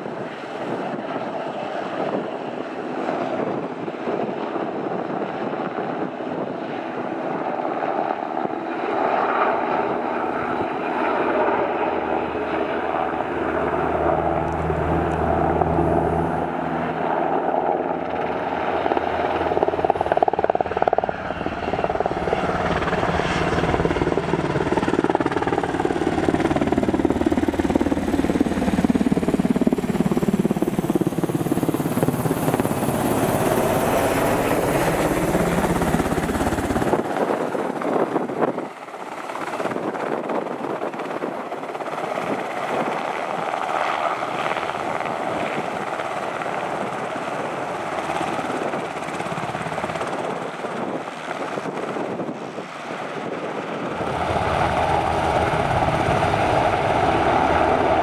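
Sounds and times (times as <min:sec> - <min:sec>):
helicopter rotor and engines: 0:00.0 - 0:58.0.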